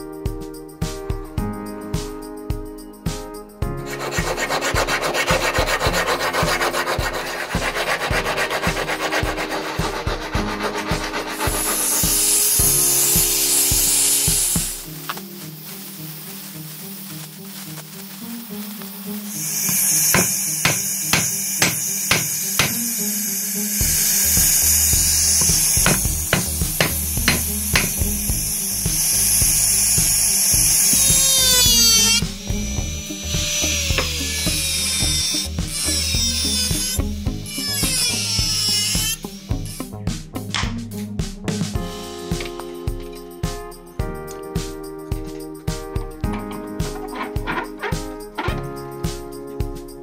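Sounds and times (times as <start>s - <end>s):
file rasping on steel blade: 3.9s - 14.4s, 19.4s - 22.8s, 23.8s - 28.0s, 33.3s - 39.2s
gas torch hissing: 3.9s - 39.8s
hammer knocks on metal: 19.7s - 22.8s, 25.4s - 28.0s.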